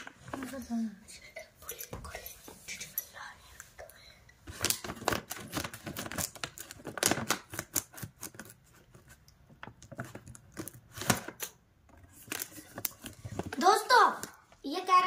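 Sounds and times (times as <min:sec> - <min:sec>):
crinkling: 0:04.5 - 0:14.6.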